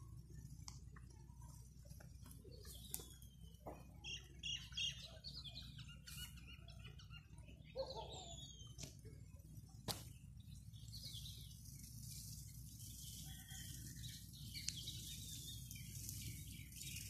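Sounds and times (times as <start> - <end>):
birds chirping: 0.0 - 17.0.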